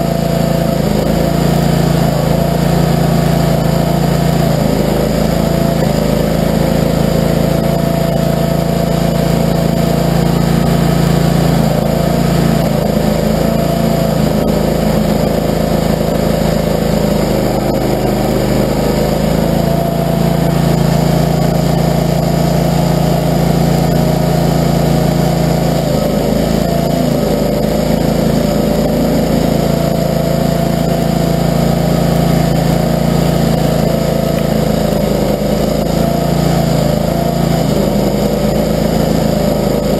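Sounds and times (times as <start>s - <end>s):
stump grinder engine running: 0.0s - 39.9s.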